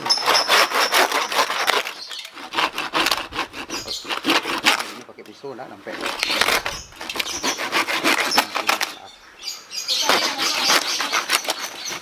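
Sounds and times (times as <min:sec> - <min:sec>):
hand saw cutting crisp meat: 0:00.0 - 0:05.0, 0:06.1 - 0:09.0.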